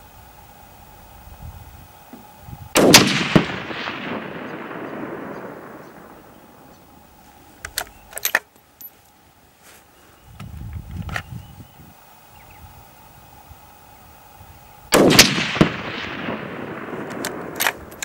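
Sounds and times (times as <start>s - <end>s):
rifle shot with echo: 2.7s - 7.2s, 14.9s - 18.0s
rifle bolt metallic clicks: 7.6s - 8.5s, 16.8s - 18.0s.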